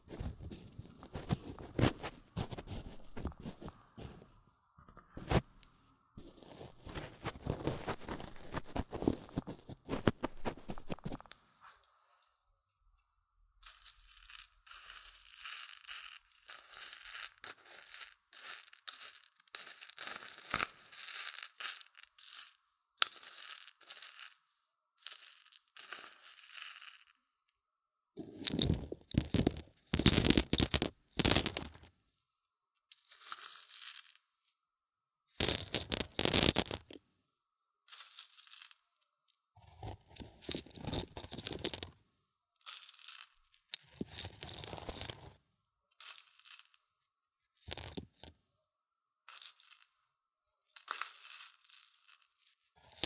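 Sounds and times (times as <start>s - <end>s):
beans rattling close up: 13.6s - 24.4s, 28.5s - 31.9s, 35.4s - 36.9s, 39.8s - 41.9s, 42.7s - 45.3s.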